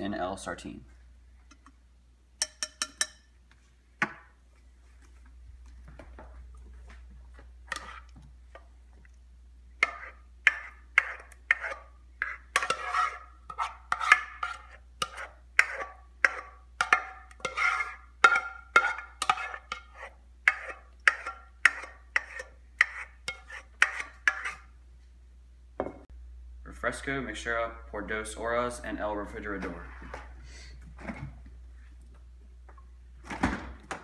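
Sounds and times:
spoon scraping a saucepan: 7.7s - 8.2s, 9.8s - 24.7s.

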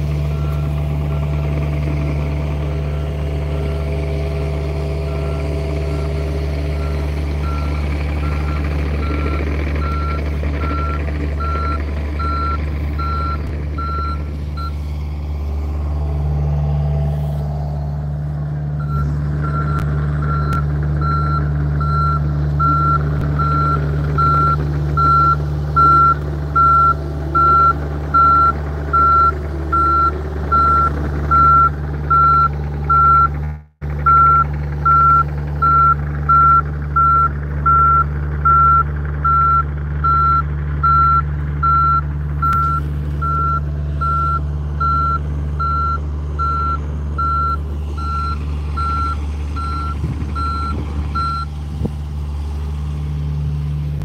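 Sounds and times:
diesel engine running: 0.0s - 54.0s
travel alarm beeping: 34.1s - 51.5s.

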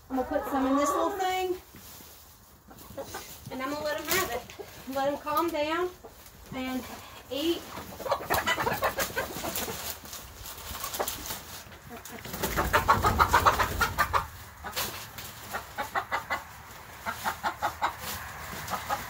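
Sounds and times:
chickens clucking: 0.0s - 19.0s
hen flapping wings: 8.4s - 15.4s.

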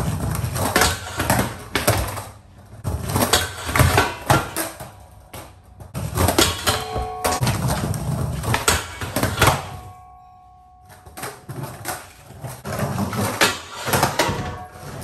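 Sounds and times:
skateboard wheels rolling on concrete: 0.0s - 10.0s, 10.8s - 15.0s
skateboard clacking on metal bar: 3.1s - 15.0s.

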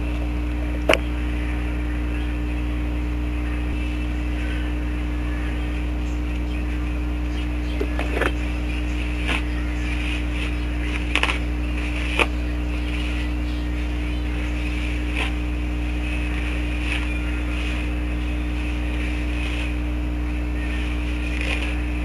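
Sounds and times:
low electrical hum: 0.0s - 22.0s
hair being handled: 7.8s - 22.0s.

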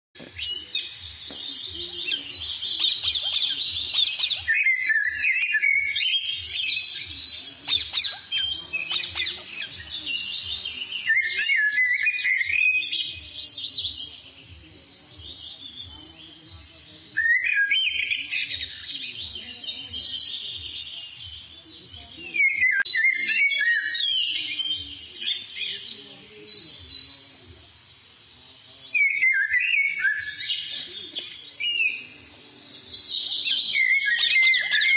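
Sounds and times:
parakeets calling: 1.3s - 12.5s, 33.1s - 34.9s.

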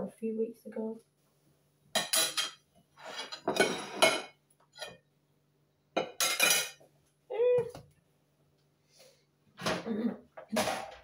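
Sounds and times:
utensil scraping china plates: 2.0s - 5.0s.

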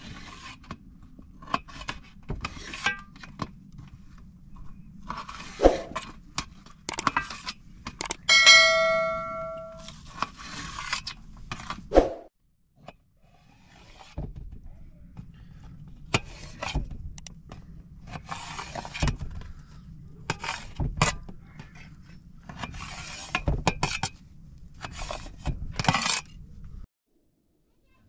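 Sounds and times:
utensils clinking on dishes: 8.1s - 9.8s.

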